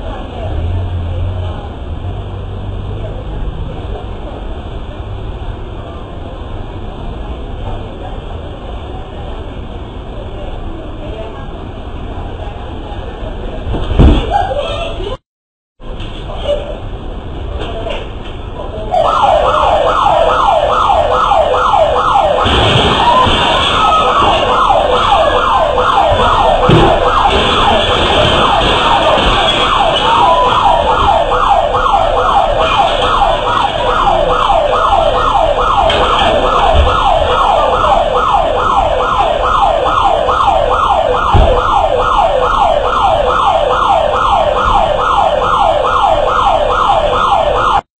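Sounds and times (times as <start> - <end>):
electronic alarm siren wailing: 18.9 - 47.8.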